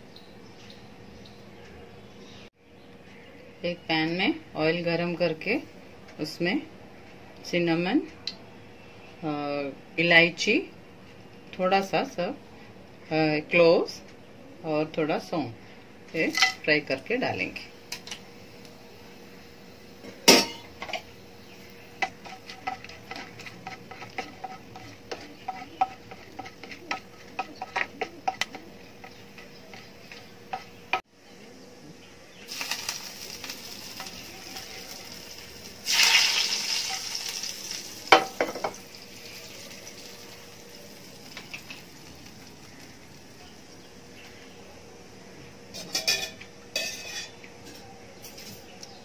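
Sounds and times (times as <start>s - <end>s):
hot oil sizzling: 17.2s - 31.0s, 32.4s - 44.2s
spices popping in oil: 20.2s - 31.0s, 32.5s - 44.3s
clatter of spices in pan: 22.0s - 31.0s, 32.5s - 43.0s
spatula against pan: 22.0s - 31.0s.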